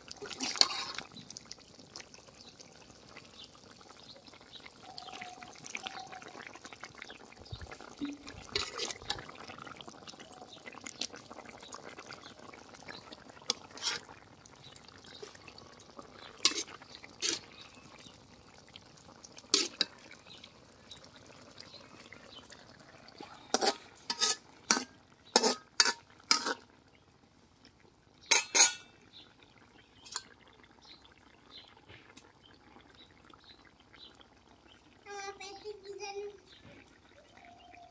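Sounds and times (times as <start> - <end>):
liquid pouring: 0.0 - 26.7
metal ladle scraping and clinking: 0.3 - 1.1, 8.0 - 9.3, 13.5 - 14.1, 16.4 - 17.5, 19.5 - 19.9, 23.5 - 26.6, 28.3 - 28.9.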